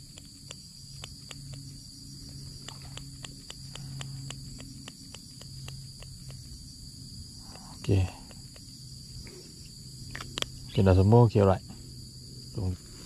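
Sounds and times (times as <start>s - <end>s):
sharp clicks: 0.0s - 1.7s, 2.4s - 6.5s
cricket and insect chorus trill: 0.0s - 13.0s.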